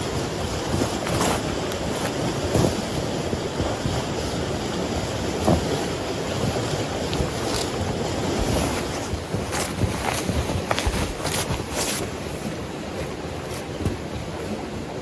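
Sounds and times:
snow brush sweeping snow: 0.6 - 3.0, 7.3 - 13.8.

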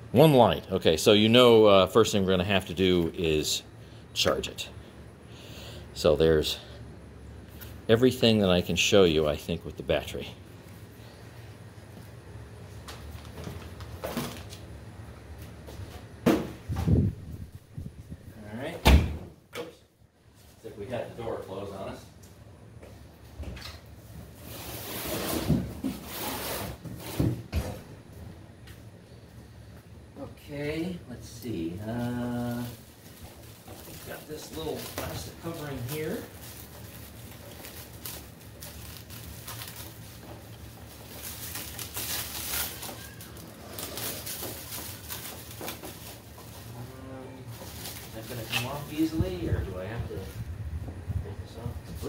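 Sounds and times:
cardboard rustling and scraping: 24.3 - 27.6
plastic wrapping crinkling: 32.4 - 49.2.

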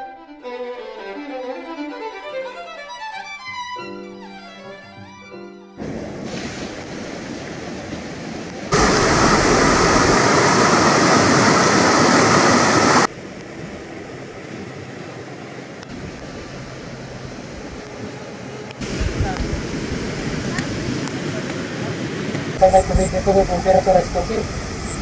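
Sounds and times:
river rapids rushing: 6.2 - 13.1.

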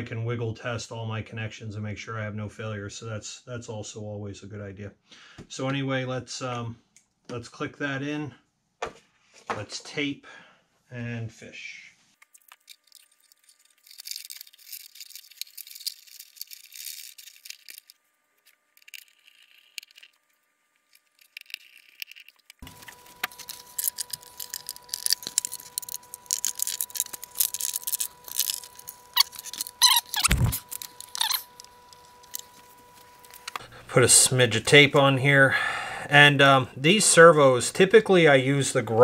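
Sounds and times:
faint steady hum: 0.0 - 39.0
scratching and rattling: 12.5 - 32.6.

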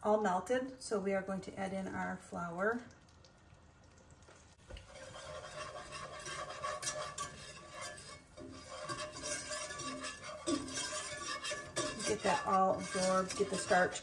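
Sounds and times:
whisk scraping in a pot: 4.7 - 14.0.

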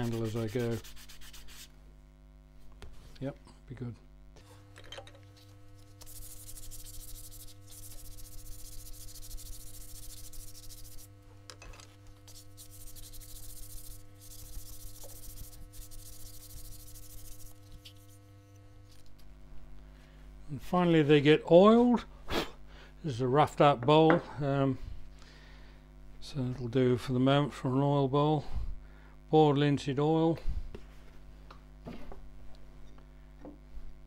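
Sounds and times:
wooden spatula sanding hiss: 0.0 - 1.7, 6.0 - 11.2, 12.2 - 18.3.

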